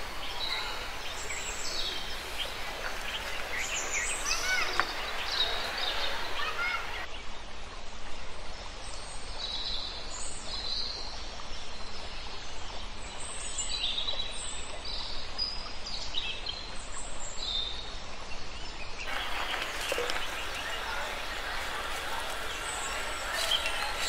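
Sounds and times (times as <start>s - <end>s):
small birds chirping: 0.0s - 7.1s, 19.0s - 24.0s
steady outdoor hiss: 0.0s - 24.0s
loud rough hiss: 19.1s - 24.0s.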